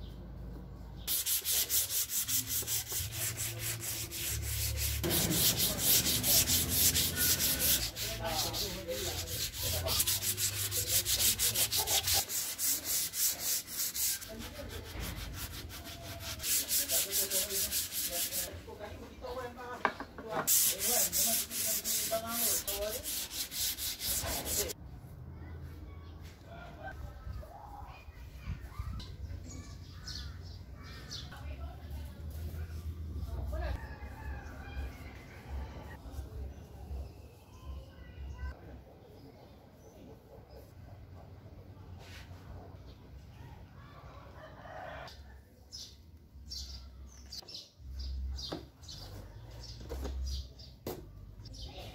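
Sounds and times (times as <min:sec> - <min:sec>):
scratchy rubbing on wood: 0:01.1 - 0:18.6, 0:20.5 - 0:24.8.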